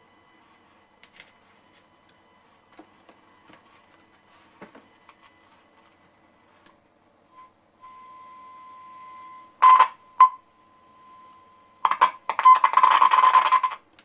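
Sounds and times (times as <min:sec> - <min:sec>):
steady test tone: 0:00.0 - 0:12.9
radio crackle: 0:11.8 - 0:13.8.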